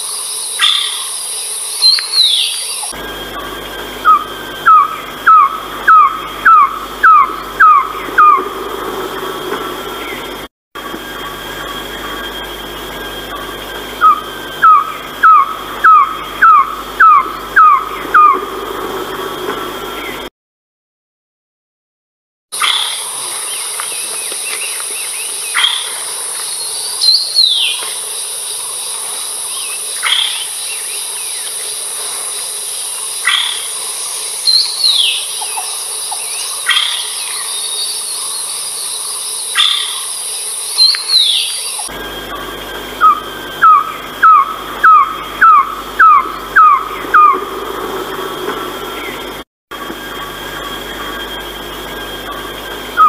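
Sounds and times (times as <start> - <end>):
high insect drone: 0.0 - 20.3, 22.6 - 53.0
bird calling falling notes: 1.8 - 10.3, 14.0 - 18.6, 40.8 - 49.4
short bird calls: 34.4 - 38.5.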